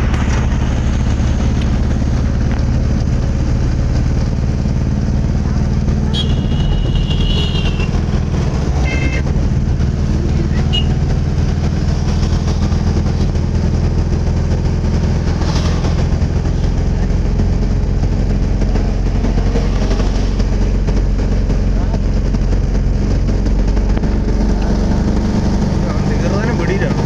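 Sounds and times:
vehicle engine and road noise: 0.0s - 27.0s.

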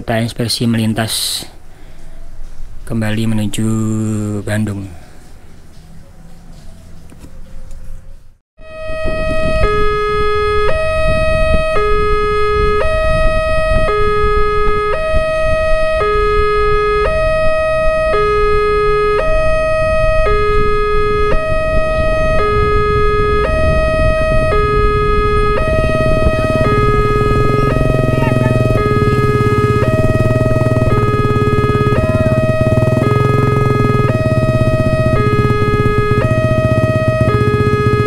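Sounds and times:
two-tone crossing alarm: 8.6s - 38.0s
steady high tone: 17.0s - 38.0s.

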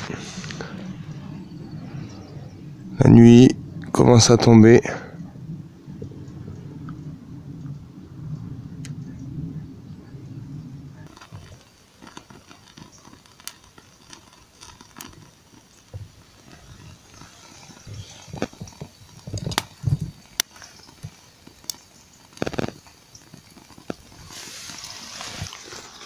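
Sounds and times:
campfire crackling: 0.0s - 26.0s
sharp pops: 11.0s - 26.0s.

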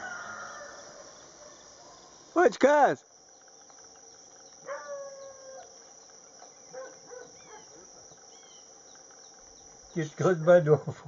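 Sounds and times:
rooster crowing: 0.0s - 1.2s
insect chirring: 0.0s - 11.0s.

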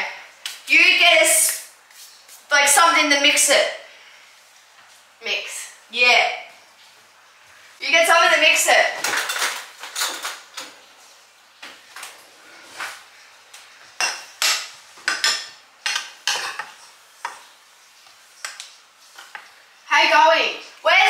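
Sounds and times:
cutlery clinking and clattering: 9.0s - 10.8s, 14.0s - 16.8s.

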